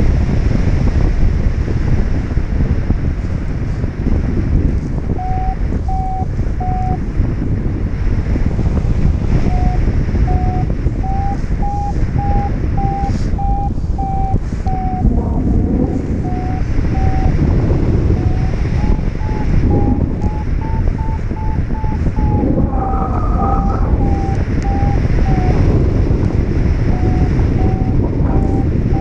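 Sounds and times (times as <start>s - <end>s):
wind rushing on microphone: 0.0s - 29.0s
variometer beeping: 5.1s - 7.0s, 9.3s - 29.0s.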